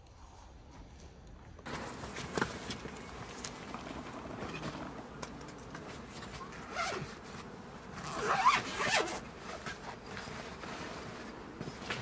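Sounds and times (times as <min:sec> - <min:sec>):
zipper being pulled: 0:06.3 - 0:07.3, 0:07.9 - 0:12.0.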